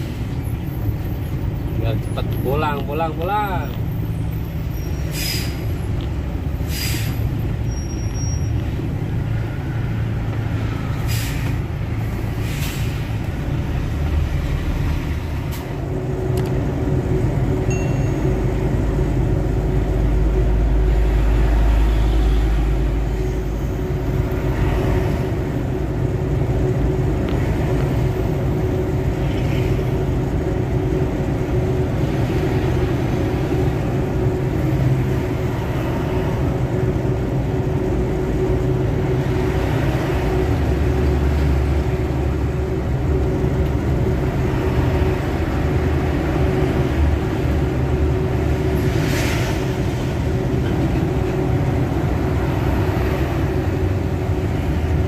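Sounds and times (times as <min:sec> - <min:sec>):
truck engine and road rumble: 0:00.0 - 0:55.0
air brake hisses: 0:05.0 - 0:05.7, 0:06.6 - 0:07.3, 0:11.0 - 0:11.6, 0:12.3 - 0:13.2.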